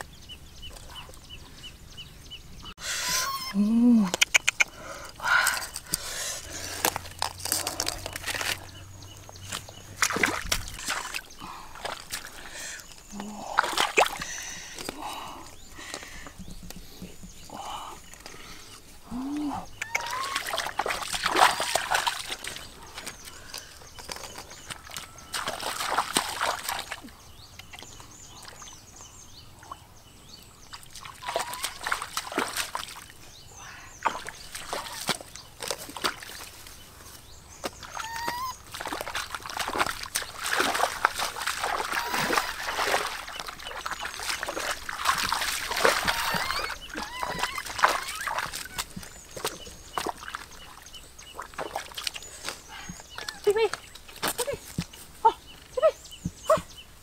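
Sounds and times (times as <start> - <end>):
bare feet wading in mud: 4.4 - 28.8, 30.6 - 57.0
hands splashing in water: 9.4 - 12.4, 13.4 - 14.4, 19.8 - 23.2, 24.8 - 27.0, 30.9 - 33.1, 37.6 - 52.3.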